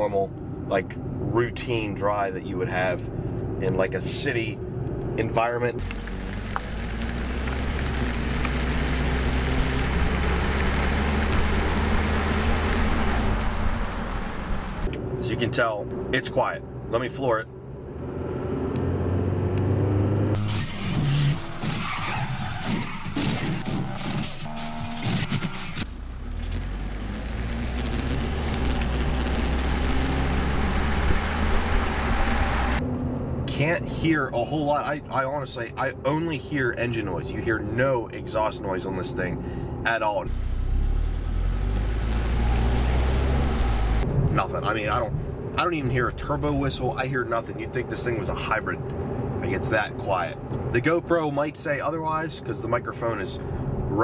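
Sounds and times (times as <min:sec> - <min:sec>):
road and wind noise: 0:00.0 - 0:54.0
low engine drone: 0:00.3 - 0:21.6, 0:22.5 - 0:34.4
engine-like tone: 0:20.2 - 0:33.9, 0:35.6 - 0:44.6.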